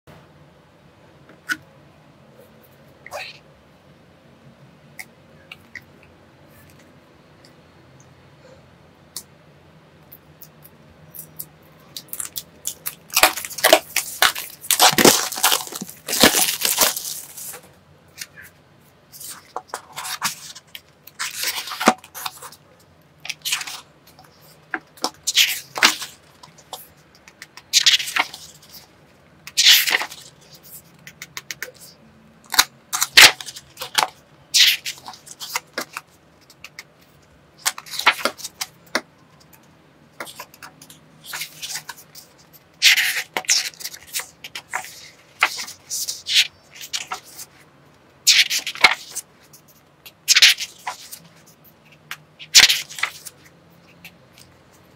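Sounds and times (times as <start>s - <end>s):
book pages turning: 11.2s - 18.5s, 19.1s - 22.6s, 23.3s - 28.9s, 29.5s - 31.9s, 32.5s - 39.5s, 40.2s - 47.6s, 48.3s - 54.9s.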